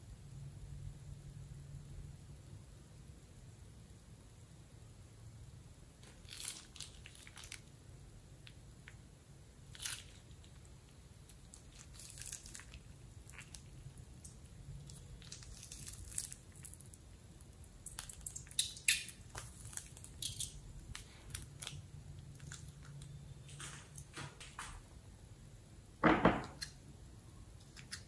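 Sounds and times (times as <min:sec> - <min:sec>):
plastic bag crinkling: 0:06.0 - 0:07.7, 0:11.3 - 0:17.0, 0:17.9 - 0:24.5.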